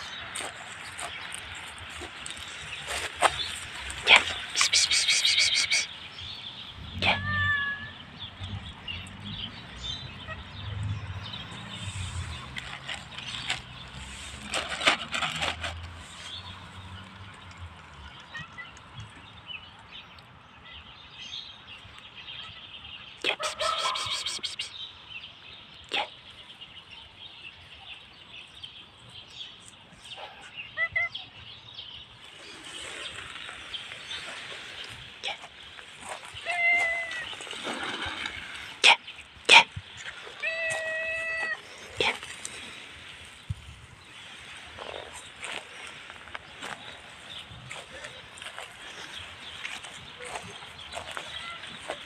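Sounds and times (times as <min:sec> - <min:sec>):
cat meowing: 0:07.0 - 0:08.0, 0:40.4 - 0:41.6.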